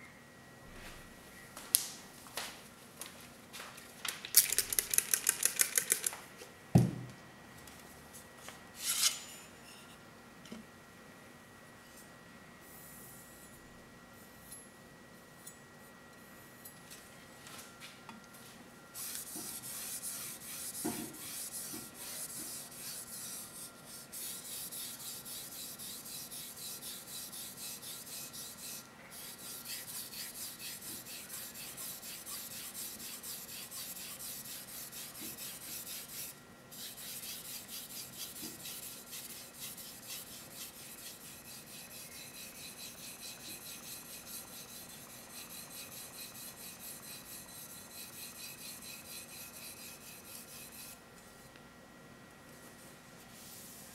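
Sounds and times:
brief knock: 6.8s - 7.1s
knife sharpening on whetstone: 24.2s - 51.0s.

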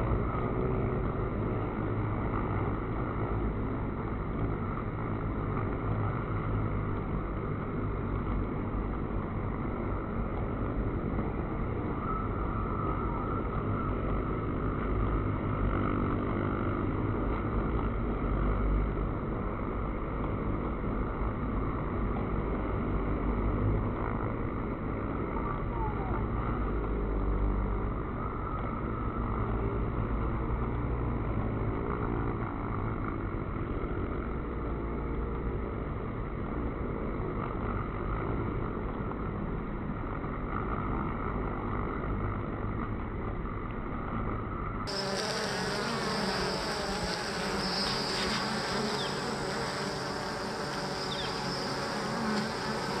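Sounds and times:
bees buzzing: 44.9s - 53.0s.

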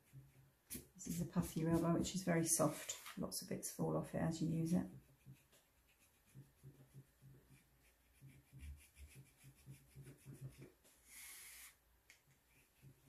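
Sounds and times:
eraser rubbing on paper: 0.0s - 3.1s, 4.7s - 11.8s.

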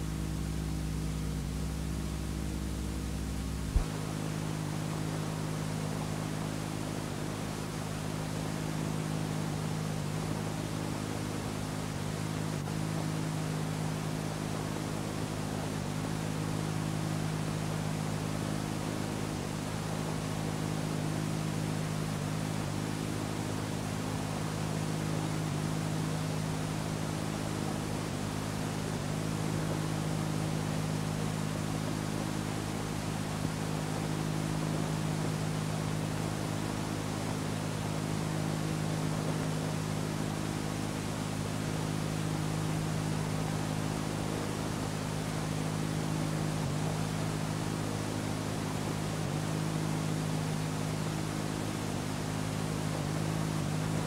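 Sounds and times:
low electrical hum: 0.0s - 54.0s
tape hiss: 0.0s - 54.0s.

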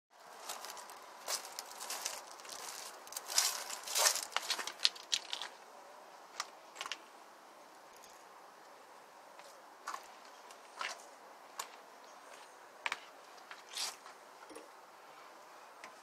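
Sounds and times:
rustling and crinkling: 0.2s - 5.6s.

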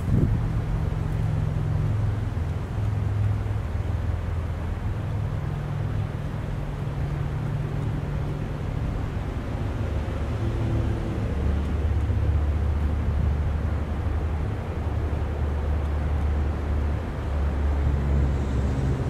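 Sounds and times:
engine running rumble: 0.0s - 19.0s.

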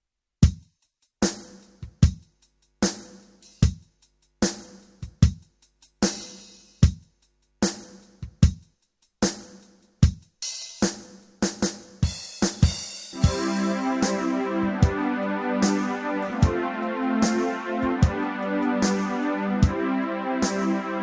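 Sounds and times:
drum kit rock beat: 0.4s - 21.0s.

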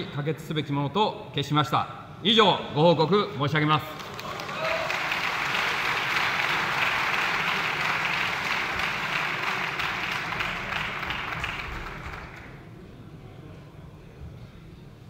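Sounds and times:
crowd applauding: 3.9s - 12.6s.

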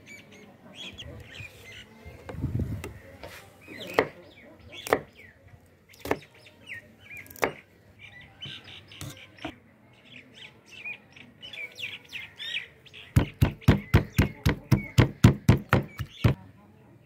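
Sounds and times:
small birds chirping: 0.0s - 16.7s.

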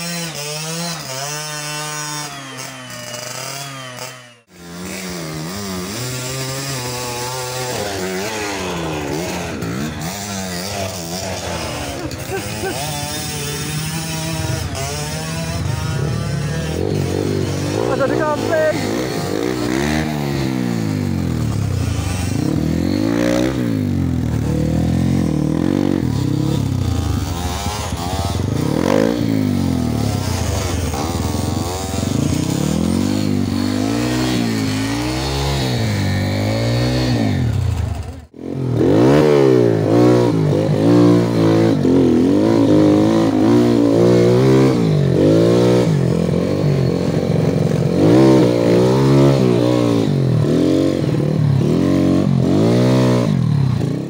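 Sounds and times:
dirt bike engines revving: 0.0s - 54.0s.

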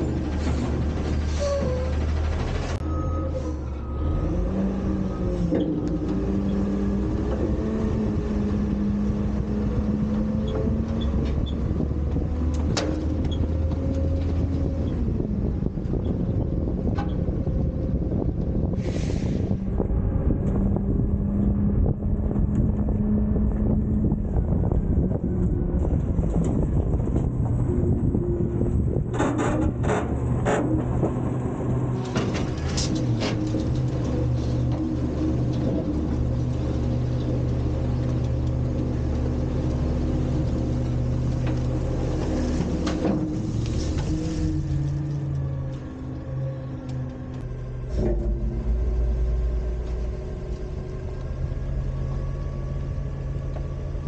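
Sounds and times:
garbage truck engine rumble: 0.0s - 54.0s
wind buffeting microphone: 6.0s - 46.5s
hydraulic whine: 46.6s - 54.0s.

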